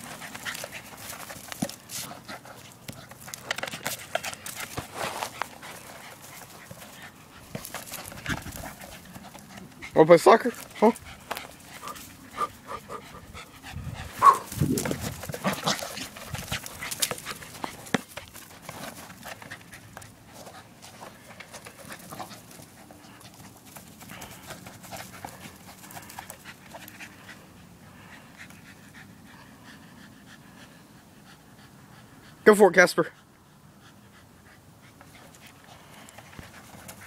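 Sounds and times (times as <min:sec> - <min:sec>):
rustling: 0:00.0 - 0:27.5
dog panting: 0:00.0 - 0:32.4, 0:33.0 - 0:37.0.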